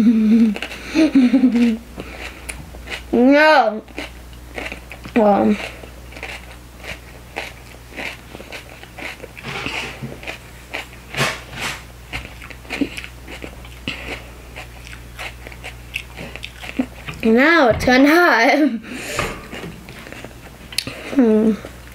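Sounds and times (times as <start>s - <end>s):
chewing crisp pepper crunches: 1.6s - 3.2s, 3.8s - 11.2s, 12.1s - 17.3s.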